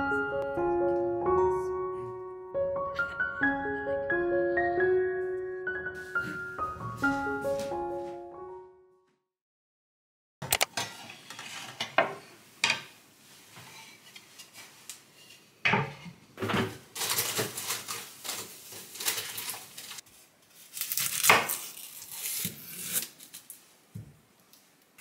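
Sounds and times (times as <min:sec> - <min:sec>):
items clattering on counter: 0:15.7 - 0:19.8
rustling: 0:16.9 - 0:23.7.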